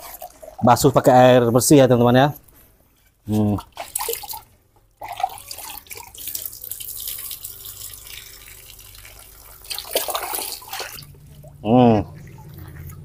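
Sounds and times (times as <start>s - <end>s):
water splashing into a bucket: 3.5s - 13.0s.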